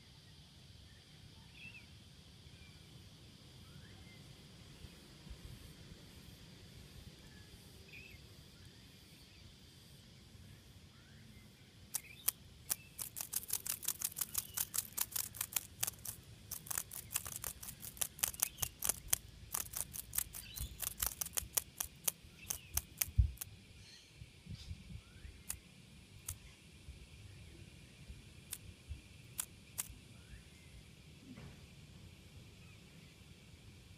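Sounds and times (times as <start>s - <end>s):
cicada wings clicking: 11.9s - 23.5s, 25.4s - 25.6s, 26.2s - 26.5s, 28.4s - 30.0s.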